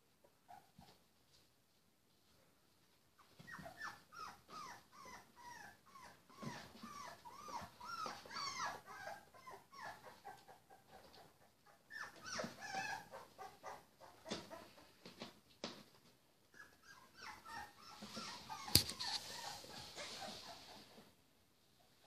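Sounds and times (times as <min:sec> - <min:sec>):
puppies whimpering and squeaking: 0:03.2 - 0:15.0, 0:16.4 - 0:21.1.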